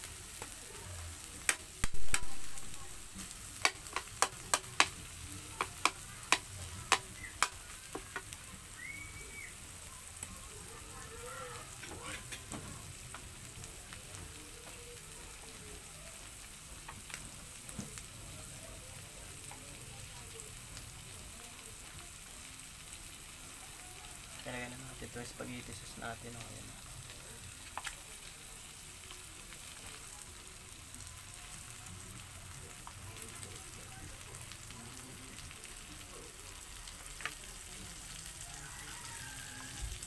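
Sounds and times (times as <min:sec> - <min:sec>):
meat sizzling in a wok: 0:00.0 - 0:40.0
spatula clacking against pan: 0:03.6 - 0:05.0, 0:05.6 - 0:08.3.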